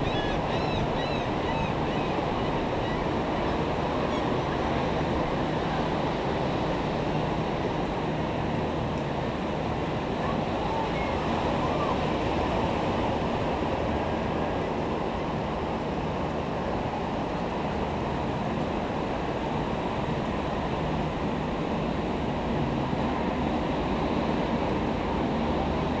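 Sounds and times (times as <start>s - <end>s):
wind: 0.0s - 26.0s.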